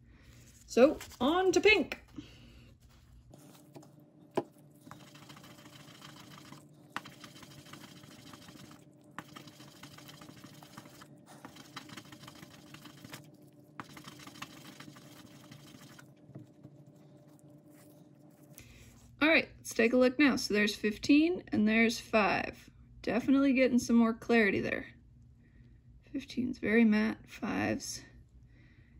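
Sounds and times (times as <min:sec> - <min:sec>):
faint steady hum: 0:00.0 - 0:28.9
die rubbing on polishing paper: 0:04.8 - 0:16.1.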